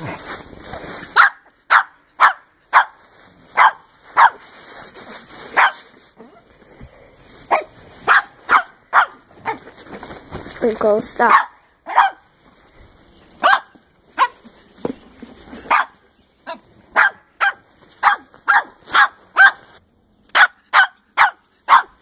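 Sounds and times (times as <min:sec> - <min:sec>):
dog barking: 0:01.1 - 0:03.0, 0:03.6 - 0:04.4, 0:05.5 - 0:05.8, 0:07.5 - 0:09.7, 0:11.3 - 0:12.3, 0:13.4 - 0:14.4, 0:15.7 - 0:19.7, 0:20.3 - 0:22.0.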